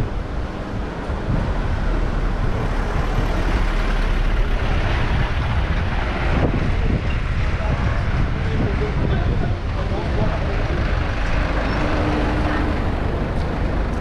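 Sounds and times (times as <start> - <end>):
street traffic: 0.0 - 14.0
truck driving past: 0.1 - 8.2.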